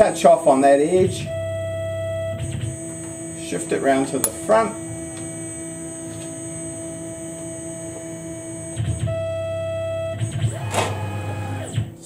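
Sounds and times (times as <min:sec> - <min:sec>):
axis drive whine and drone: 0:00.0 - 0:12.0
electrical hum of milling machine: 0:00.8 - 0:12.0.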